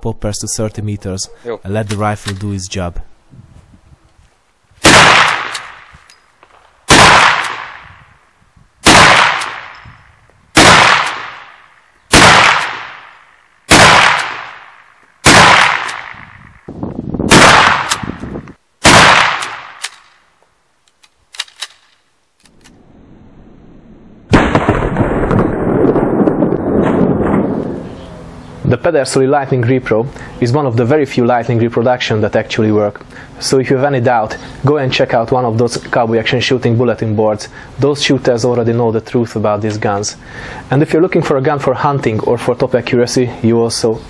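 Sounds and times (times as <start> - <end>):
rifle shots: 4.8 - 8.0, 8.8 - 10.0, 10.6 - 16.6, 17.3 - 18.2, 18.8 - 20.2, 24.3 - 27.7.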